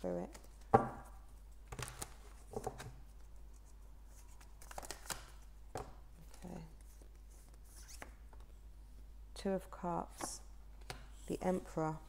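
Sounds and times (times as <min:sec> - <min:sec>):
cards being shuffled: 0:06.2 - 0:08.2.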